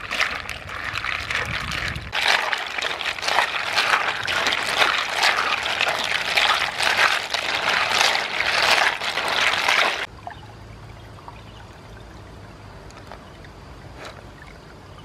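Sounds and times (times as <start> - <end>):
snail shells clattering: 0.0 - 10.1
water swishing: 0.0 - 10.1.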